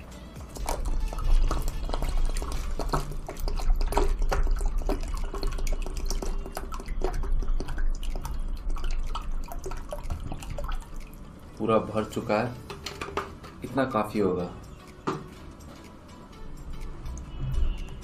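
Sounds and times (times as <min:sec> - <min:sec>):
water pouring into a bowl: 0:00.4 - 0:12.6
water splashing and dripping: 0:00.4 - 0:14.0.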